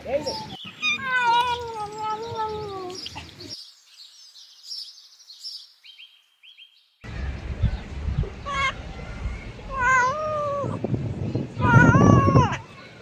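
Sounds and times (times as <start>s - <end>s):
cat meowing: 0.8s - 3.0s, 9.7s - 10.8s, 11.6s - 12.6s
low rumbling noise: 7.0s - 12.6s.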